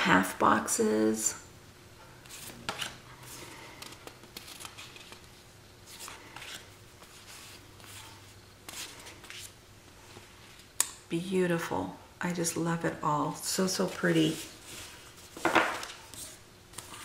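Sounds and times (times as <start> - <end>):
paper rustling and sliding: 13.8 - 17.0.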